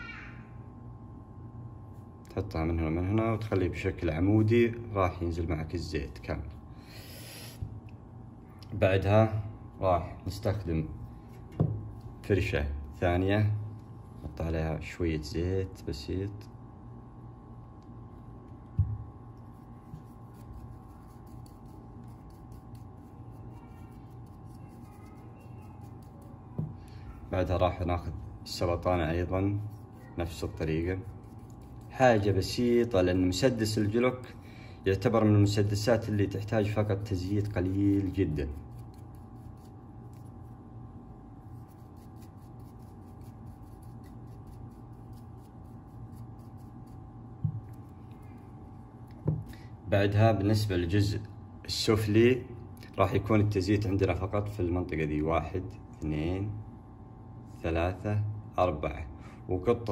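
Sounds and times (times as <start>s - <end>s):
low room hum: 0.0s - 59.9s
soft thump on bench: 11.5s - 11.8s, 18.8s - 19.0s, 49.2s - 49.5s
brush scratching on metal: 19.4s - 26.5s, 28.8s - 32.9s, 35.7s - 40.6s, 41.4s - 48.4s.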